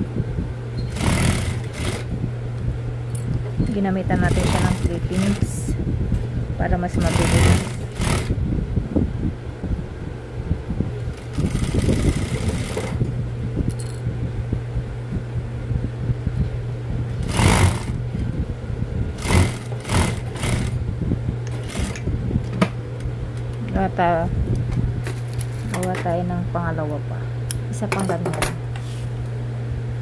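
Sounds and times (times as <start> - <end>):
low motor hum: 0.0 - 30.0
sewing machine stitching: 0.9 - 2.1, 4.2 - 5.5, 7.0 - 8.4, 11.1 - 13.0, 17.2 - 18.0, 19.2 - 20.8, 21.5 - 22.0.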